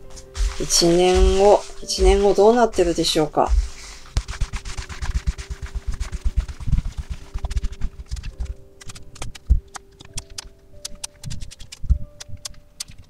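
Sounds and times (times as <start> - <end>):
cards rubbing on cloth: 0.0 - 10.3.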